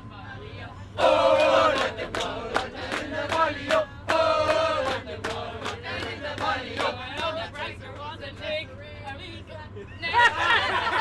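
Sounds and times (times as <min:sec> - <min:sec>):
group chanting and singing: 0:01.0 - 0:07.9.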